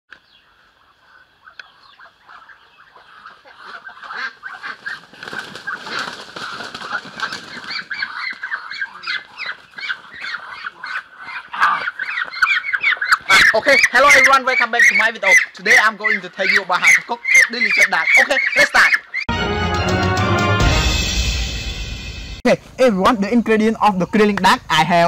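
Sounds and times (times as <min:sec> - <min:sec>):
ducks calling in alarm: 0:00.5 - 0:19.3
wings flapping: 0:02.3 - 0:19.2
scuffling: 0:03.0 - 0:14.9.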